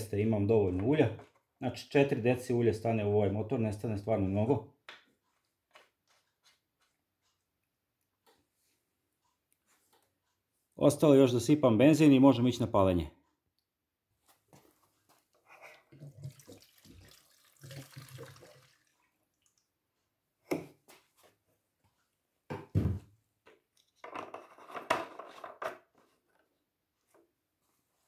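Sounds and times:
petrol pouring into fuel tank: 16.0 - 19.1.

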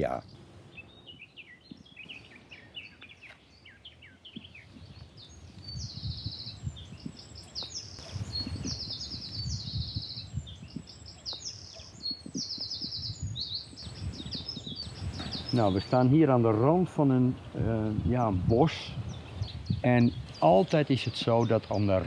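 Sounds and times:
high bird trills: 0.0 - 16.0
songbirds singing and chirping: 0.0 - 22.0.

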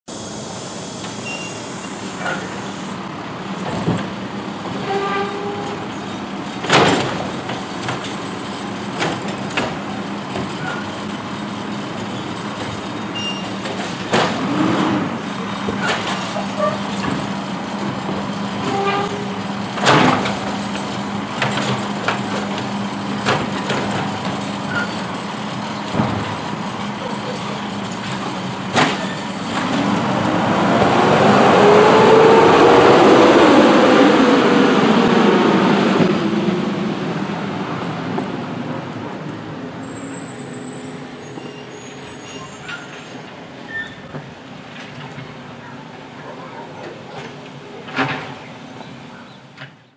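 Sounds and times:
diesel engine running: 0.1 - 41.9
trash cart clanking and banging: 3.5 - 11.1, 11.8 - 31.2, 42.3 - 48.5
engine revving: 14.2 - 15.2, 29.4 - 37.6.

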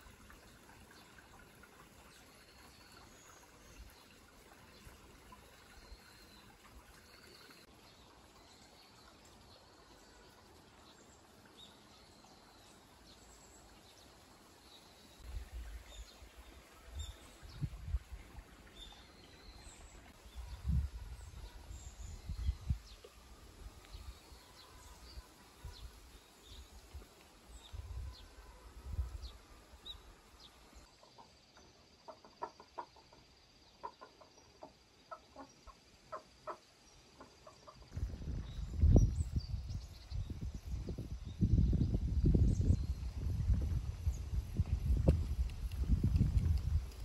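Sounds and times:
wind buffeting microphone: 17.0 - 18.4, 20.2 - 23.0, 37.9 - 47.0
chickens clucking: 32.1 - 36.6.

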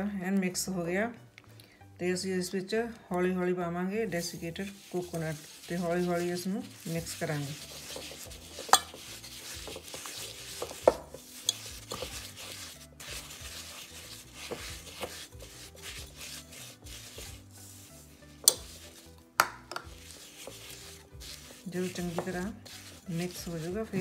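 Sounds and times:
spatula scraping glass bowl: 4.1 - 24.0.

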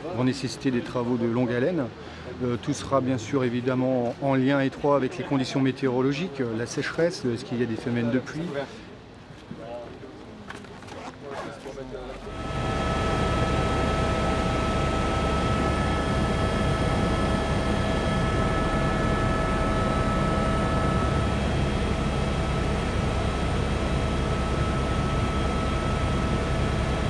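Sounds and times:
aircraft engine drone: 12.3 - 27.0.

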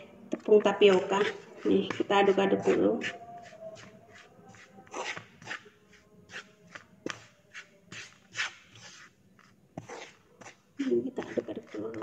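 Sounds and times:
spatula scraping frying pan: 0.7 - 3.2, 9.8 - 12.0.

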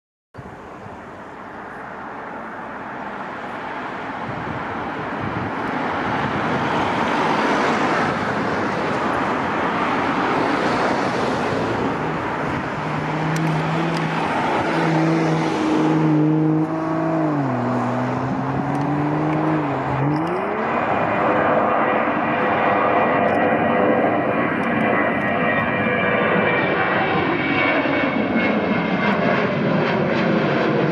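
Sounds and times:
jet engine roar: 0.4 - 30.9
low tone dropping in pitch: 11.8 - 25.0.

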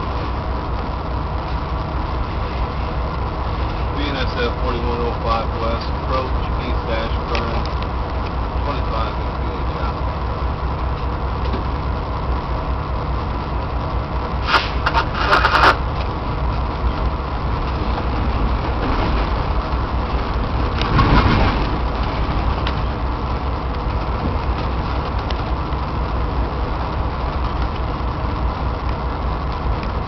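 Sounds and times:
locomotive engine rumble: 0.0 - 30.0
wheels on rails: 0.0 - 30.0.

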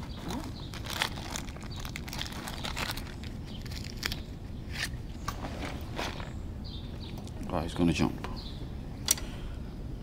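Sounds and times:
plastic bag crinkling: 0.0 - 4.4.

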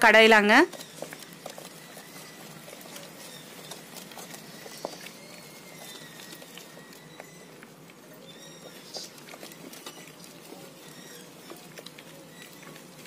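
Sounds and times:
soft squelching of mashed lentils: 0.0 - 13.0.

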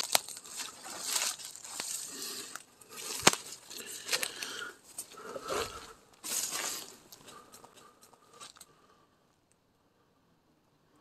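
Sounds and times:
sharp snaps of stems: 0.0 - 5.1
footsteps crunching through leaves: 0.0 - 7.5
leaves and stems rustling: 0.0 - 8.7.

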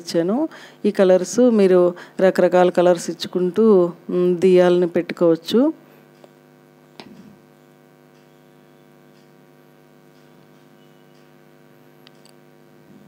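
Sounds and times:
electrical hum: 0.0 - 13.0
soft ticks: 9.1 - 9.4, 10.1 - 11.4.

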